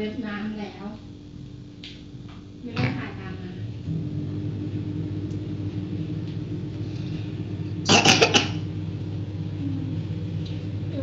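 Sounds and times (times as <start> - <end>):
low mechanical hum: 0.0 - 11.0
loud burst of noise: 3.2 - 11.0.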